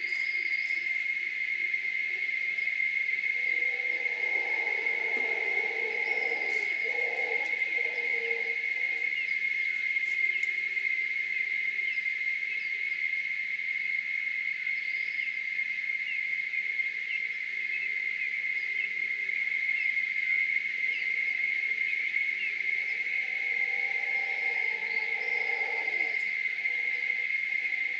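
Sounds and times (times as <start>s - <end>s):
insect chorus drone: 0.0s - 27.9s
distant howler monkeys roaring: 1.5s - 9.7s, 20.6s - 27.9s.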